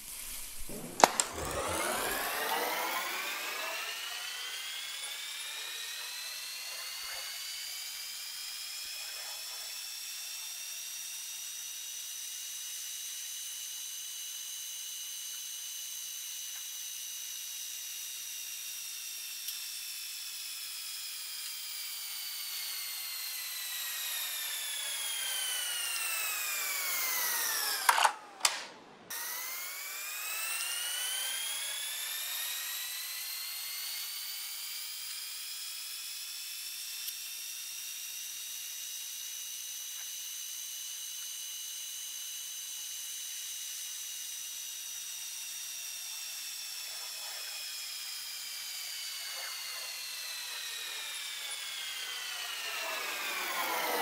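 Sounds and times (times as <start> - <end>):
cassette motor and reels whining: 0.0 - 16.8, 19.2 - 54.0
cassette transport click: 1.0 - 1.5, 27.9 - 28.7.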